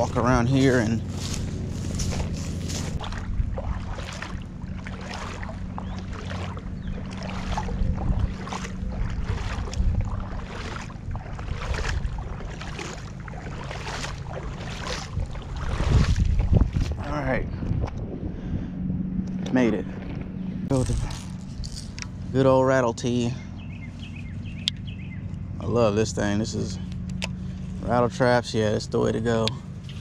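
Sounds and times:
footsteps splashing through water: 0.0s - 17.0s
wind rumble on microphone: 0.0s - 22.4s.

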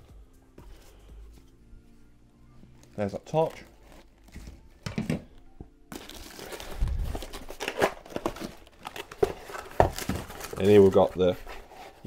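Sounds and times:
packaging crinkling: 5.9s - 11.1s.

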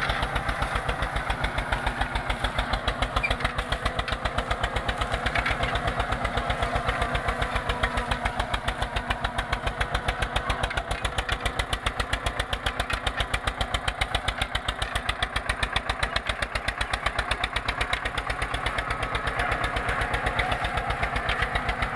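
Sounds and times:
tractor diesel engine running: 0.0s - 21.9s.

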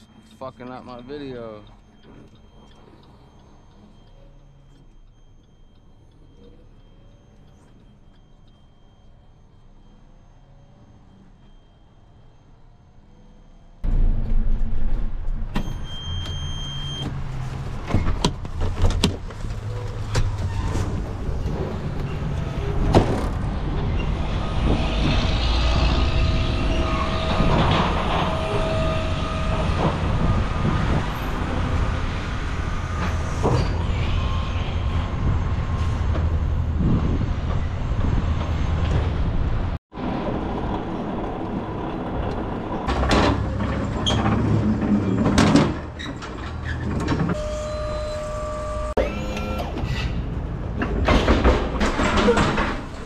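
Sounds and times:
truck engine and road rumble: 0.0s - 53.0s
brief whines: 47.4s - 50.2s.

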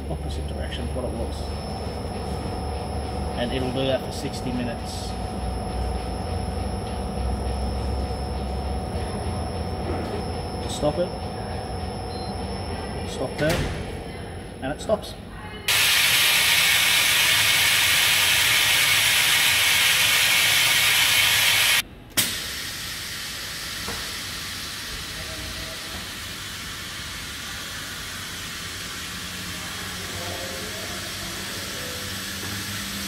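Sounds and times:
air hissing into vacuum chamber: 15.7s - 33.0s.

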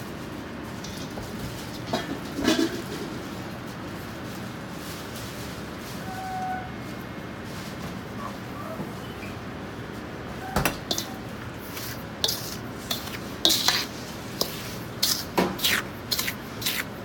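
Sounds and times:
metal ladle scraping steel bowl: 10.8s - 17.0s
salt grains rasping: 10.9s - 17.0s.

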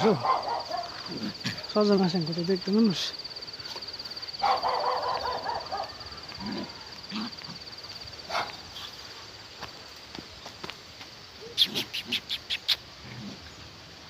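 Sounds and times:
insect trill: 0.0s - 14.0s
harsh animal call: 11.4s - 13.4s.

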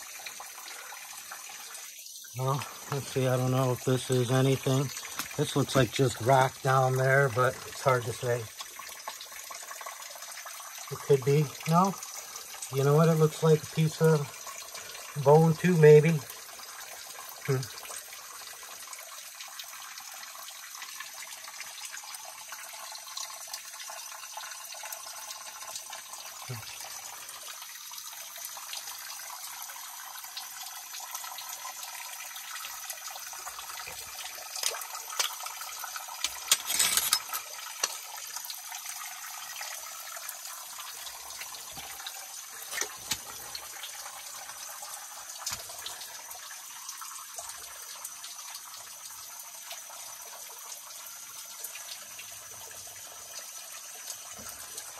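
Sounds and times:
creek water trickling over rock: 0.0s - 54.9s
knocks and scrapes: 36.2s - 38.0s.

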